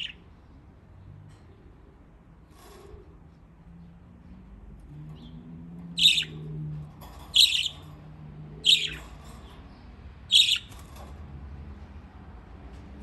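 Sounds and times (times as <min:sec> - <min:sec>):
budgerigar chirping: 0:06.0 - 0:06.4, 0:07.4 - 0:07.8, 0:08.6 - 0:09.0, 0:10.3 - 0:10.7.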